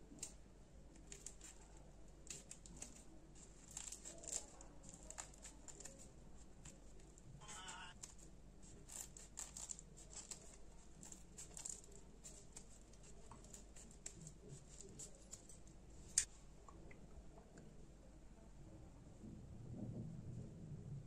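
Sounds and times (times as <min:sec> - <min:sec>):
scissors cutting crusty bread: 0:00.0 - 0:16.3.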